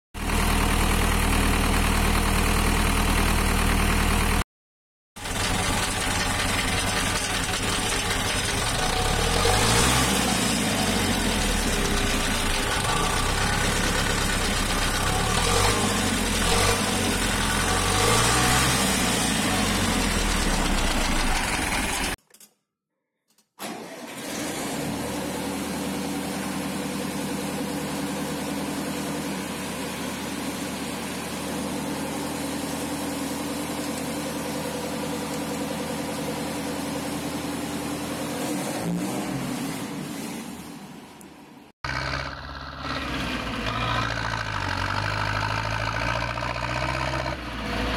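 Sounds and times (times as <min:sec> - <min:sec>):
tractor diesel engine idling: 0:00.2 - 0:04.4, 0:05.2 - 0:22.2, 0:41.9 - 0:47.4
tractor diesel engine revving: 0:05.2 - 0:22.2, 0:41.8 - 0:47.9.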